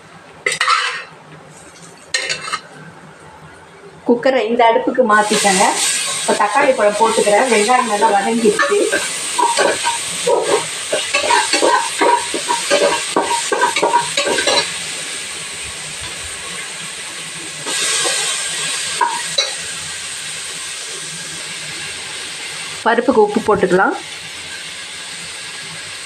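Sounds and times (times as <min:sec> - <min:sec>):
spoon stirring and scraping pot: 0:00.5 - 0:02.6, 0:07.5 - 0:14.7
onions frying in oil: 0:05.0 - 0:26.0.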